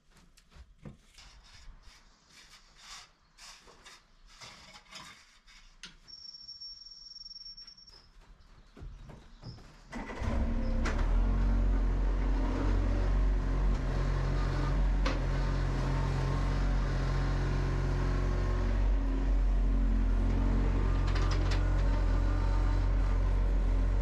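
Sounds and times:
excavator diesel engine: 9.9 - 24.0.

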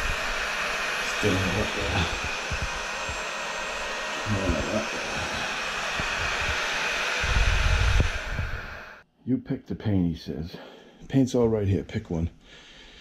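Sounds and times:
heat gun blowing hot air: 0.0 - 9.0.

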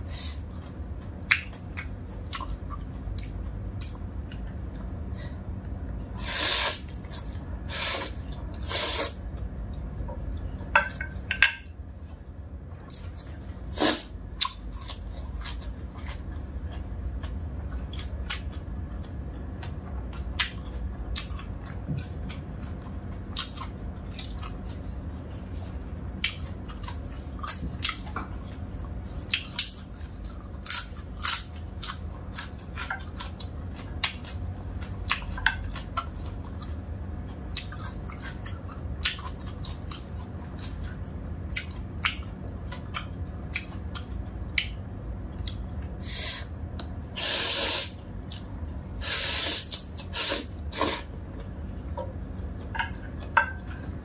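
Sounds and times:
person chewing noodles: 12.0 - 44.8, 47.2 - 54.0.

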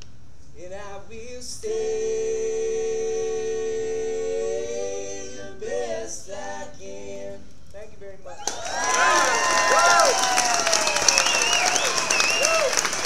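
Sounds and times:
male vocal group singing: 0.6 - 7.5.

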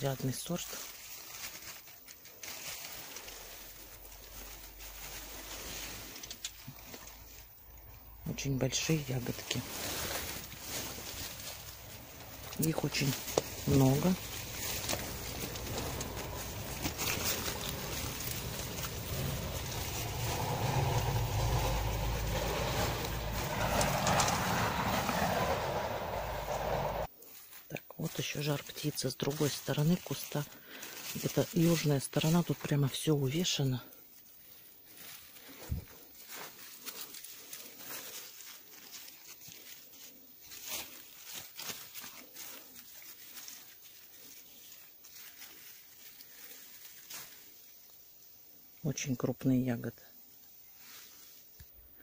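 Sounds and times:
leaves brushing microphone: 0.0 - 48.2
brief crackles: 0.9 - 7.9
low rumbling noise: 9.2 - 27.1.

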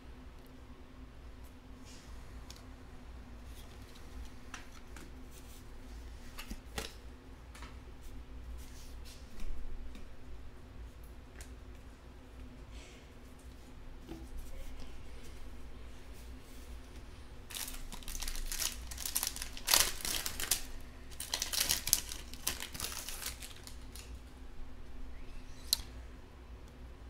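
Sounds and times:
foil wrapper crinkling and tearing: 17.5 - 24.2.

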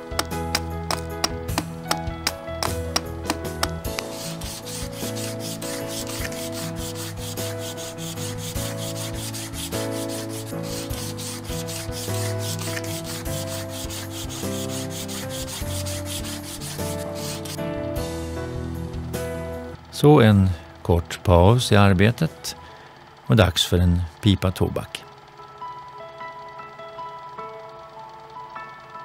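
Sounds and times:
fast scratchy rasping rhythm: 0.0 - 17.8
music of held notes: 0.0 - 29.0.

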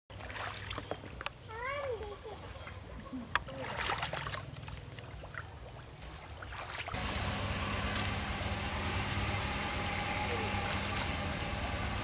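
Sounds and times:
hands splashing in water: 0.1 - 1.2, 3.4 - 7.0
motor hum: 6.9 - 12.0.

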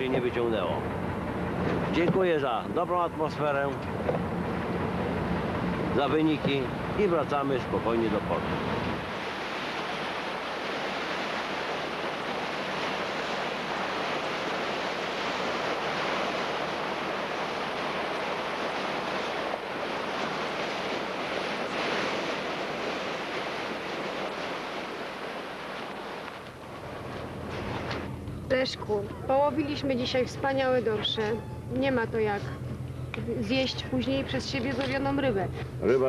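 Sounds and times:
water rushing along boat hull: 0.0 - 36.0
wind on microphone: 8.4 - 32.0.

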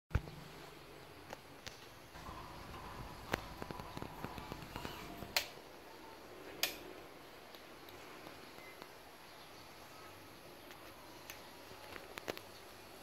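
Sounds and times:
sharp snaps: 6.6 - 6.9.

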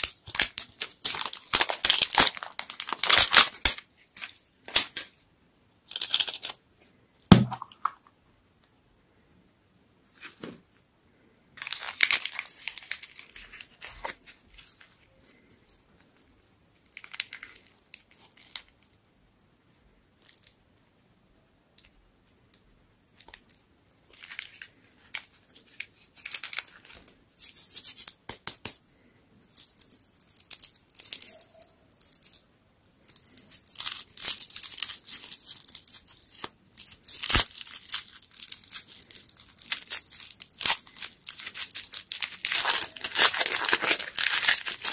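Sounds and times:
plastic wrapper crinkling: 0.0 - 5.2, 5.8 - 6.6, 11.6 - 19.0, 21.8 - 44.9.

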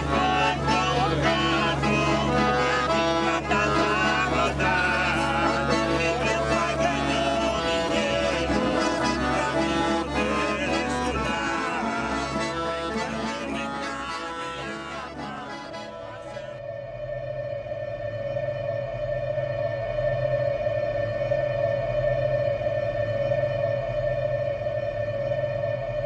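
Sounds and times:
man and woman singing: 0.0 - 16.5
accordions playing: 0.0 - 16.6.

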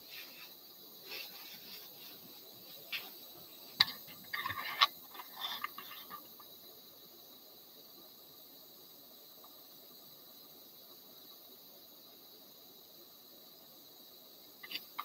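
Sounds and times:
camera handling rustling: 3.8 - 6.3.

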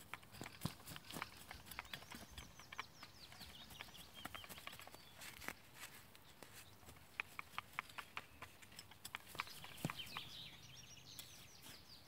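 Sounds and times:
sharp clicks: 0.0 - 5.6, 6.9 - 10.5
hand fork scraping soil: 0.0 - 6.6
bird singing falling notes: 0.0 - 12.0.

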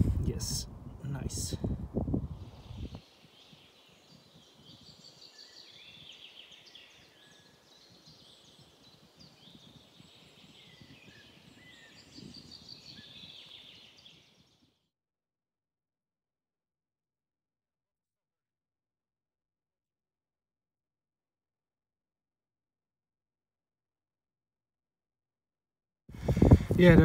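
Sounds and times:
birds chirping and trilling: 2.3 - 14.8.

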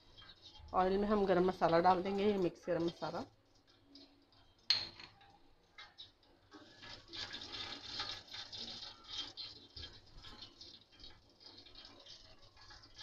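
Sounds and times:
spatula stirring in pot: 0.0 - 13.0
spices sizzling in hot oil: 0.0 - 13.0.

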